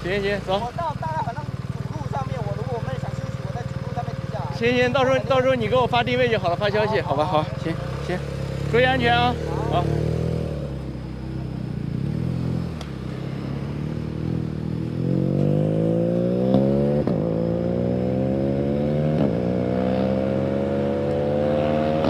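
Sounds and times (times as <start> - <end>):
small motorcycle engine accelerating: 4.8 - 22.0.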